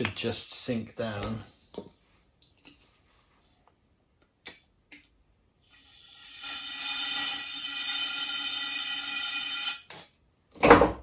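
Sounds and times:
gas canister hissing: 0:05.7 - 0:09.8.

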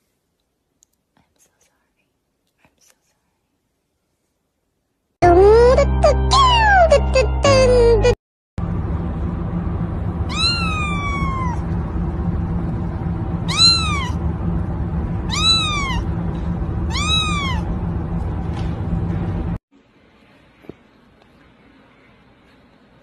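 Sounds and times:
low background hum: 0:00.0 - 0:23.0
kitten meowing: 0:10.3 - 0:11.6, 0:13.5 - 0:14.2, 0:15.3 - 0:16.1, 0:16.9 - 0:17.7.

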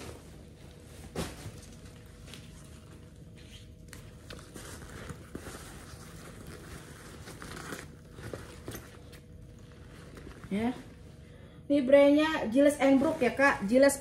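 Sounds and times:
backpack rustling and crinkling: 0:00.0 - 0:10.7.

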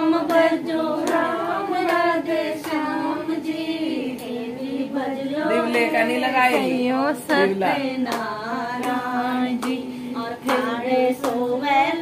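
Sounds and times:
women singing together: 0:00.0 - 0:12.0
faint hand claps: 0:00.1 - 0:02.9, 0:05.6 - 0:11.5.

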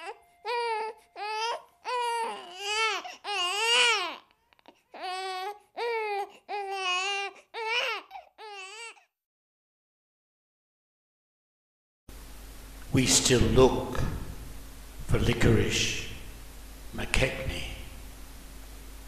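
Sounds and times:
baby crying: 0:00.0 - 0:09.1.

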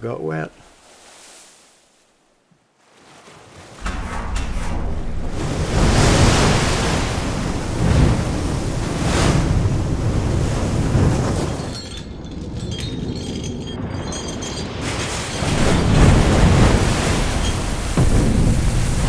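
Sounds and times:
water surging and splashing: 0:02.8 - 0:12.1, 0:14.8 - 0:19.0.

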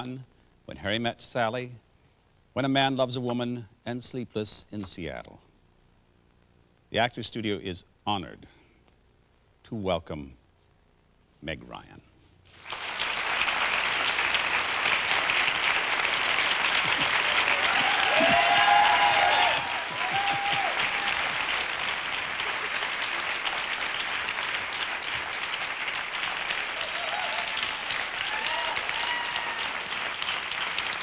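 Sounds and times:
audience applauding: 0:12.5 - 0:31.0.

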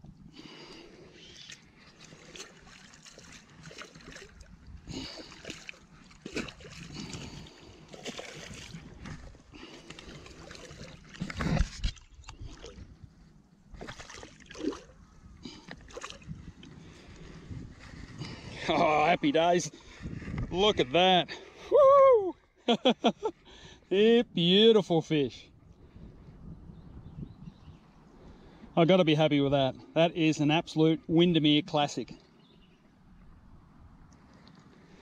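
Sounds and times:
fish splashing in shallow water: 0:00.4 - 0:17.4.

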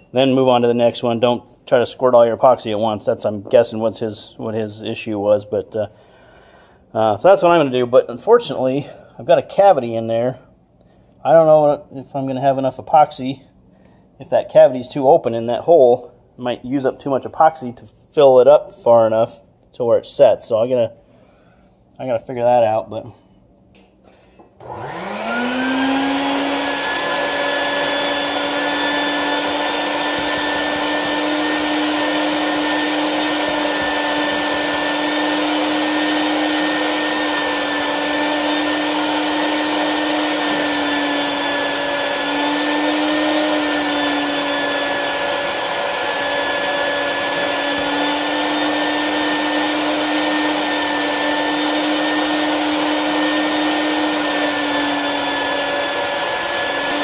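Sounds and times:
shop vacuum motor whining: 0:24.5 - 0:57.0.

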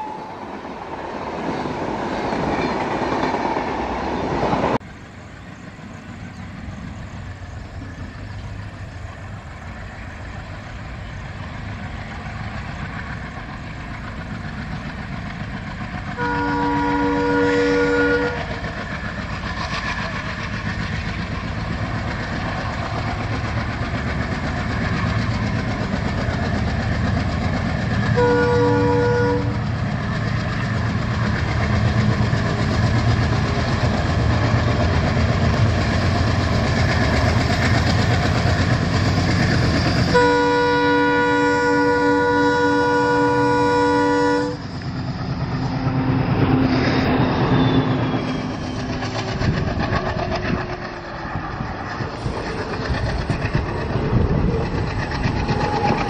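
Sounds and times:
diesel locomotive engine chugging: 0:00.0 - 0:56.0
locomotive horn: 0:16.2 - 0:18.6, 0:28.1 - 0:29.7, 0:40.0 - 0:44.7.

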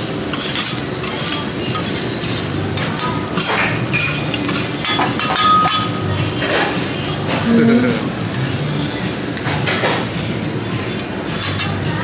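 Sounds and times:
cutlery clinking on plates: 0:00.3 - 0:07.6, 0:08.3 - 0:08.6, 0:09.3 - 0:10.2, 0:10.9 - 0:11.9.

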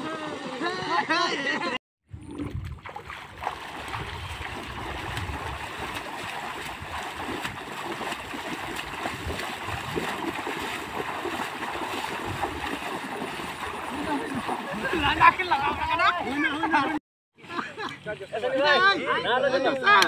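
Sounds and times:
feet splashing in water: 0:02.2 - 0:16.9.

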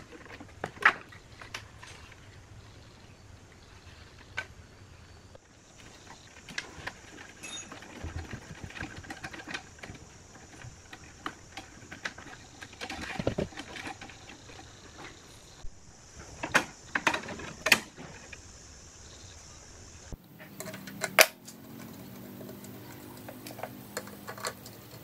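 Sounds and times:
screwdriver clicks and metal taps: 0:20.4 - 0:25.0.

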